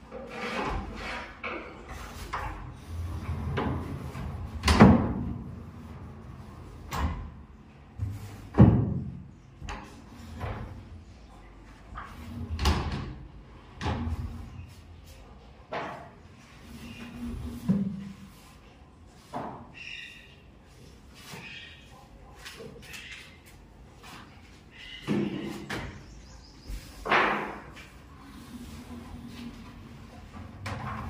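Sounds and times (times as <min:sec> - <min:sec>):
sliding doors rolling on track: 0:01.9 - 0:07.2, 0:27.9 - 0:31.0.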